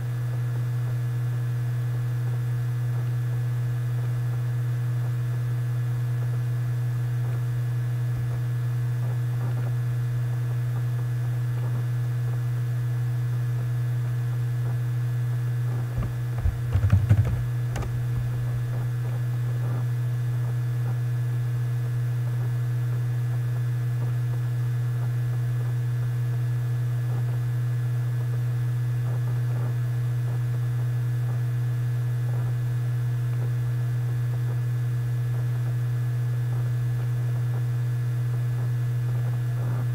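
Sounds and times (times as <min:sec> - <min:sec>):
low electrical hum: 0:00.0 - 0:39.9
computer keyboard clicks: 0:16.0 - 0:18.8.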